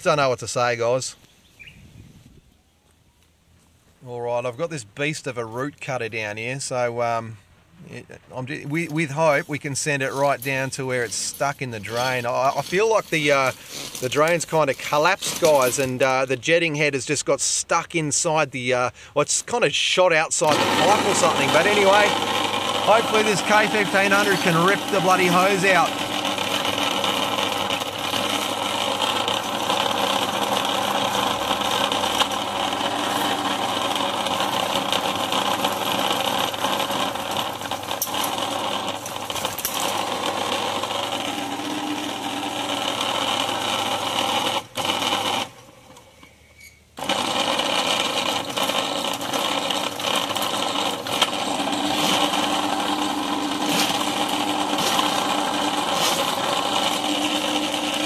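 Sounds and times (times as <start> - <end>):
drain cleaning machine running: 8.4 - 16.0, 20.4 - 46.0, 47.0 - 58.0.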